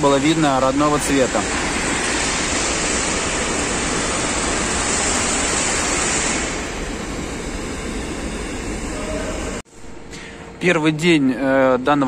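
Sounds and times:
loud rushing noise: 0.0 - 7.3.

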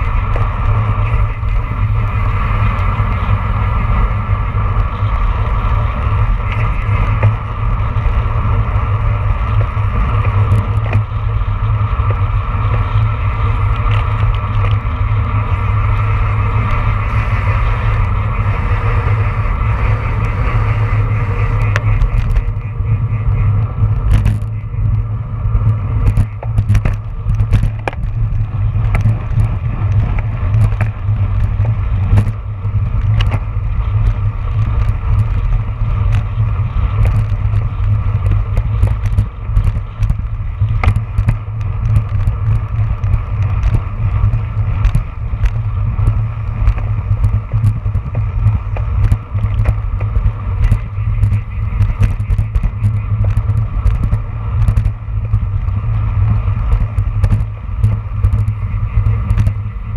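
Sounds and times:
tyre and road rumble: 0.0 - 59.9
wind buffeting microphone: 0.0 - 59.9
sharp clicks and knocks: 6.4 - 11.4, 21.5 - 22.6, 23.5 - 59.7.

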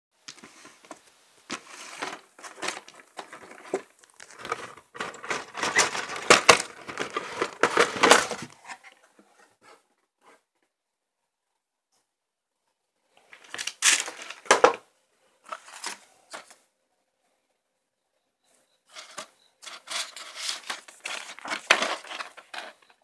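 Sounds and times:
cardboard box rustling: 1.5 - 8.8, 19.0 - 22.8.

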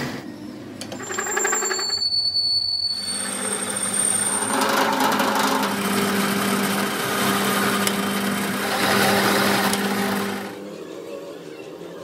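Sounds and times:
metal lathe cutting metal: 3.0 - 10.6.

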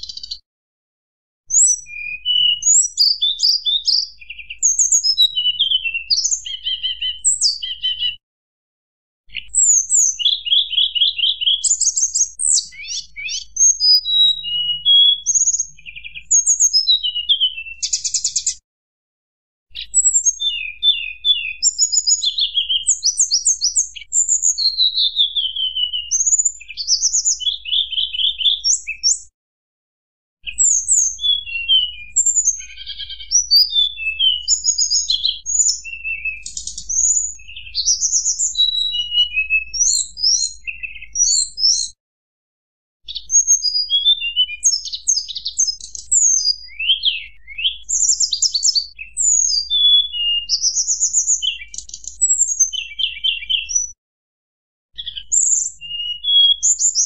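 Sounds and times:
bird whistling and trilling: 0.0 - 0.4, 1.5 - 8.2, 9.3 - 18.6, 19.7 - 29.3, 30.4 - 42.0, 43.1 - 54.0, 55.0 - 57.0.

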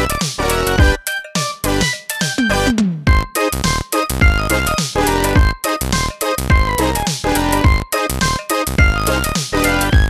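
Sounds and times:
upbeat electronic music: 0.0 - 10.0.

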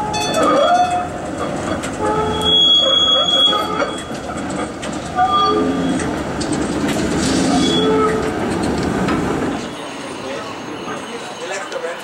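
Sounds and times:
steel wheels rumbling on rail: 0.0 - 12.0
high wheel squeals: 2.0 - 4.4, 5.1 - 6.2, 7.4 - 8.3, 9.6 - 12.0.

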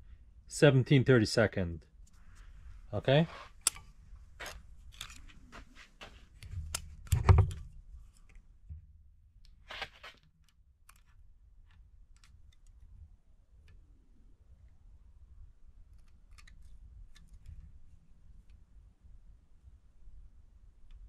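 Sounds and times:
small metallic clicks and scrapes: 3.3 - 5.4, 9.5 - 12.9, 15.9 - 17.7.

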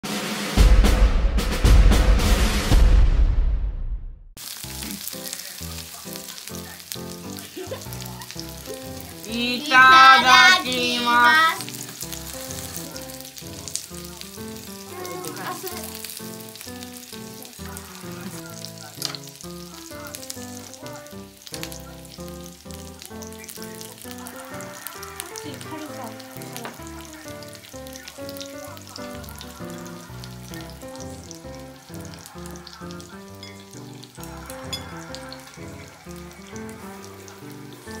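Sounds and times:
meat sizzling on hot plate: 4.4 - 38.0
light background music: 4.8 - 38.0
high-pitched vocal sound: 9.2 - 11.7, 14.8 - 16.0.

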